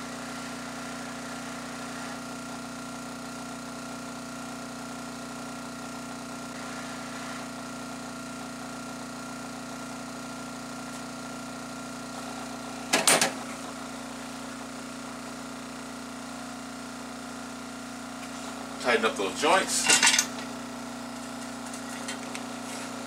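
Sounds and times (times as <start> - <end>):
hot-air blower humming: 0.0 - 23.0
handpiece clattering into metal holder: 19.9 - 20.3.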